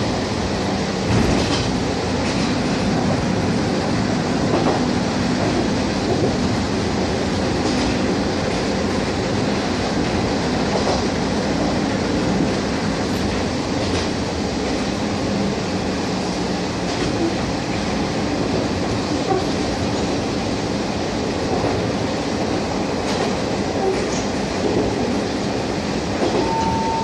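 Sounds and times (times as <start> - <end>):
railcar engine and wheels rumbling: 0.0 - 27.0
short steady tone: 26.4 - 27.0.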